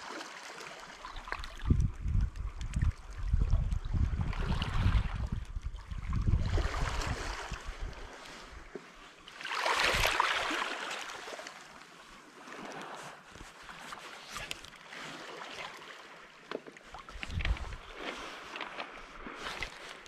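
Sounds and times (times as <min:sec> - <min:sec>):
water lapping with clicks: 0:00.0 - 0:20.0
wind buffeting microphone: 0:01.4 - 0:08.6, 0:17.1 - 0:18.3
sea water rushing: 0:06.3 - 0:20.0.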